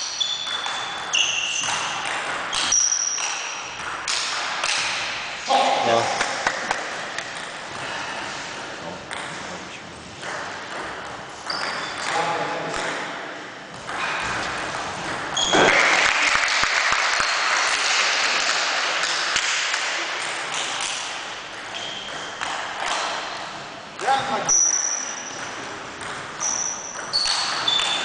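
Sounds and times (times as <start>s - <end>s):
voices in echoing hall: 4.6s - 11.1s, 11.9s - 21.5s, 23.0s - 25.8s
people clapping: 6.2s - 6.9s, 15.5s - 21.0s.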